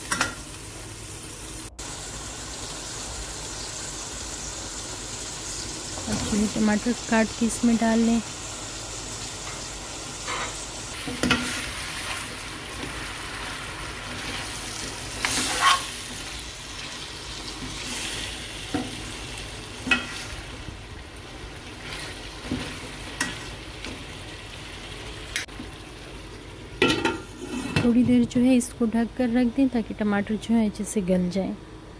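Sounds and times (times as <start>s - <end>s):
meat frying in oil: 0.0s - 27.5s
metal ladle scraping a pan: 15.2s - 16.0s, 27.1s - 27.9s.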